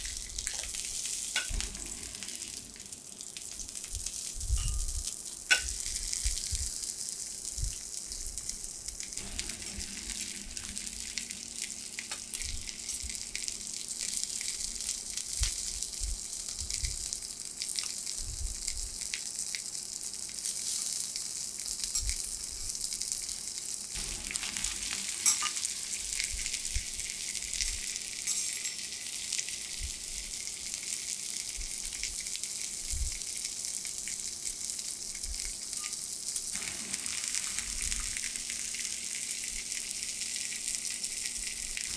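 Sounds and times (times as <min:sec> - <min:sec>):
fish sizzling on a griddle: 0:00.0 - 0:41.9.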